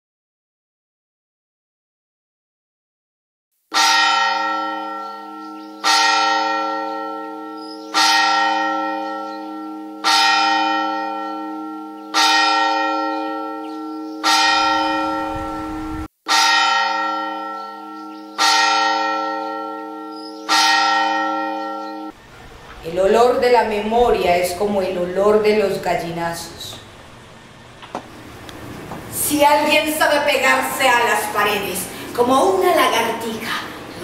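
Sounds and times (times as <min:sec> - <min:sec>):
bell tolling: 0:03.8 - 0:22.2.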